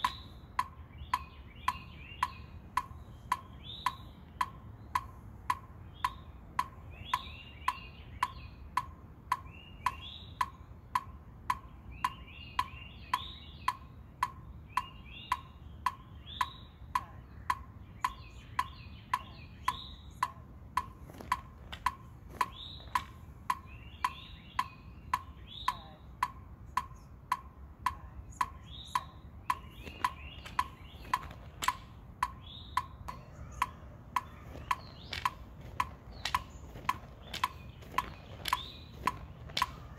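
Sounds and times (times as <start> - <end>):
birds singing: 0.0 - 39.9
electronic metronome clicking: 0.0 - 39.9.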